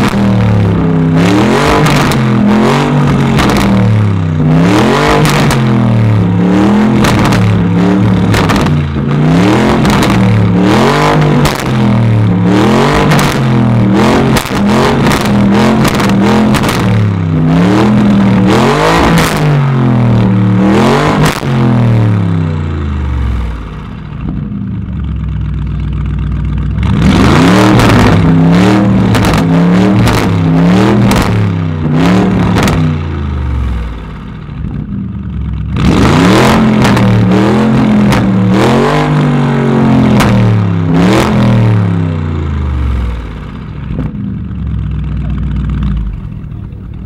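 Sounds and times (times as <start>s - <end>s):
car engine revving: 0.0s - 47.0s.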